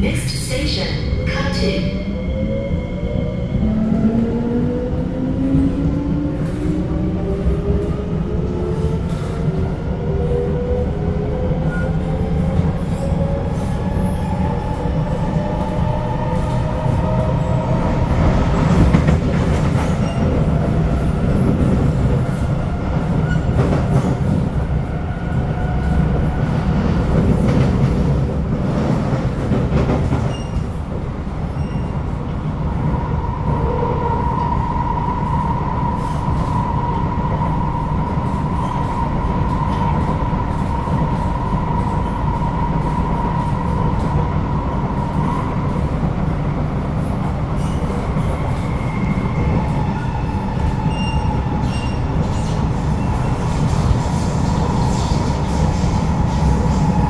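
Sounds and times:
wheels rumbling on rail: 0.0s - 57.0s.

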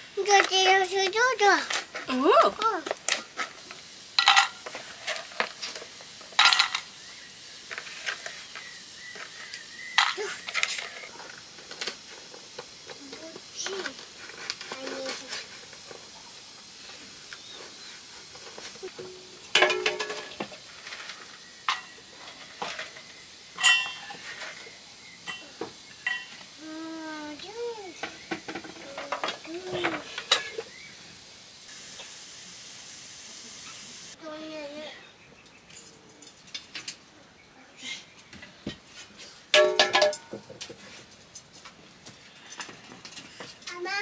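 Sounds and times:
metal pots clanking: 4.2s - 7.0s, 7.7s - 12.9s, 18.3s - 26.5s, 28.0s - 30.8s, 39.5s - 40.7s
metal utensil scraping pot: 18.4s - 26.4s.

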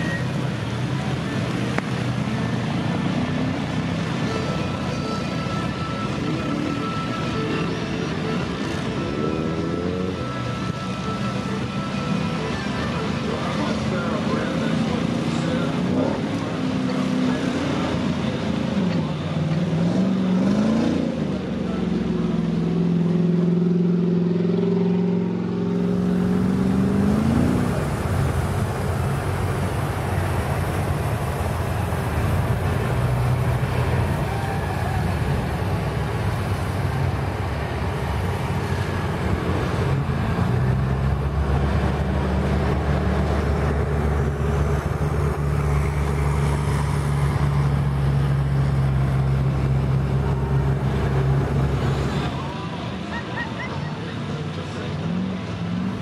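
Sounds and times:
engines running in mud: 0.0s - 56.0s
low engine hum: 0.0s - 56.0s
mud and water churning: 25.5s - 53.4s.

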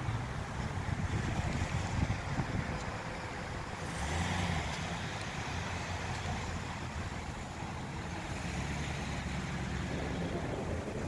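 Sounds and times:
cars moving through traffic: 0.0s - 11.0s
van engine rumbling past: 0.0s - 11.0s.

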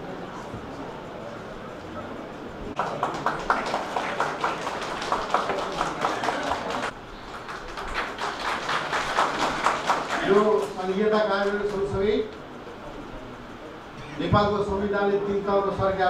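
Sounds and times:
audience clapping: 2.8s - 12.0s.

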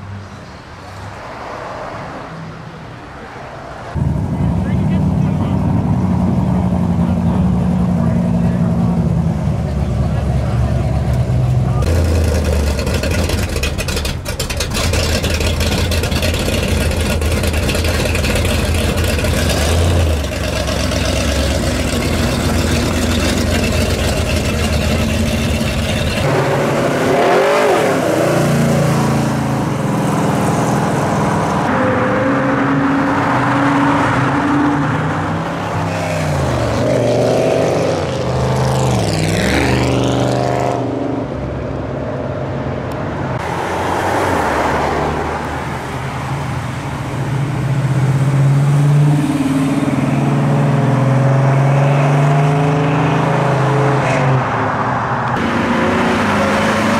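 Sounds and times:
cars accelerating past: 3.8s - 56.9s
car engine idling: 4.0s - 26.3s.

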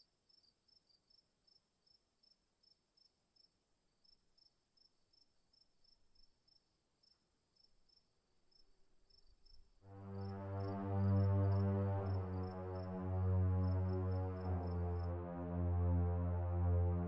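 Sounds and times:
crickets chirping: 0.3s - 13.0s
low droning background music: 9.8s - 17.0s.

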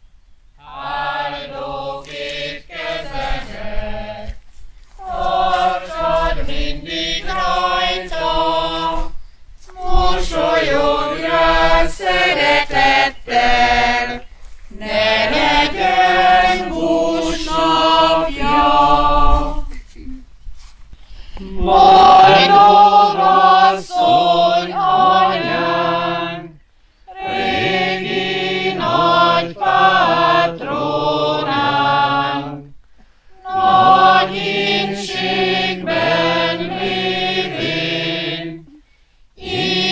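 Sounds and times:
choir singing: 0.6s - 4.4s, 5.0s - 19.8s, 21.4s - 32.7s, 33.4s - 38.8s, 39.4s - 39.9s.

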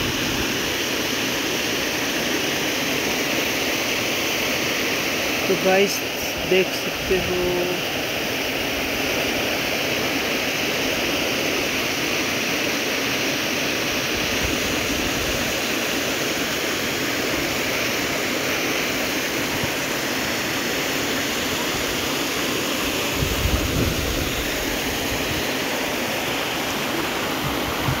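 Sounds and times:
steady rushing noise: 17.4s - 28.0s
wind buffeting microphone: 23.1s - 25.4s, 27.4s - 28.0s.

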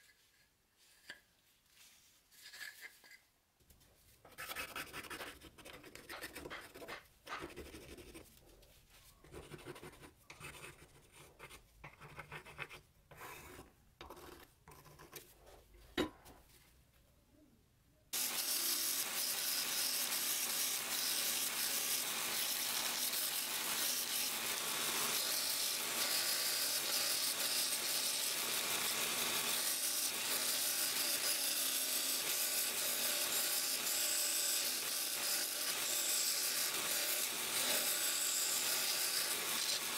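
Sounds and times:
pencil scratching on wood: 4.3s - 8.3s, 9.2s - 15.3s
belt sander grinding wood: 18.2s - 39.9s.

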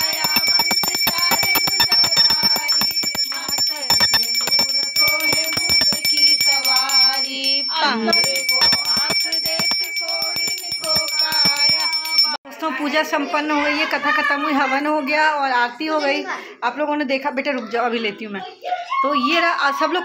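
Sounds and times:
brass hand bell ringing rapidly: 0.0s - 12.4s
voices singing: 0.0s - 15.2s.

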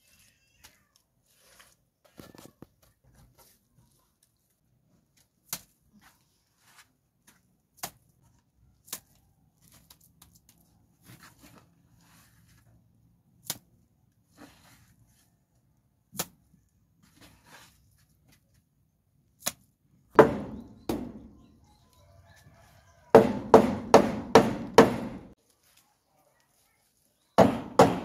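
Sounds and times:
scraping and patting of mud: 0.0s - 19.8s.

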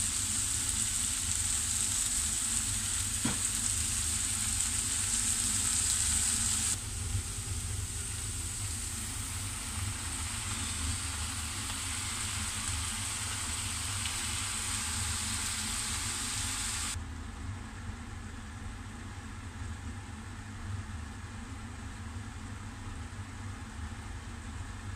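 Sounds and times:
food sizzling in hot oil: 0.0s - 17.0s
low steady hum: 0.0s - 24.9s.

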